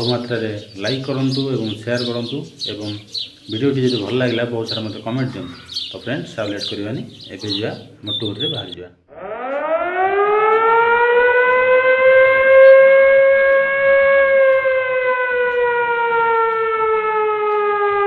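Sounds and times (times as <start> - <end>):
siren wailing: 8.1 - 18.0.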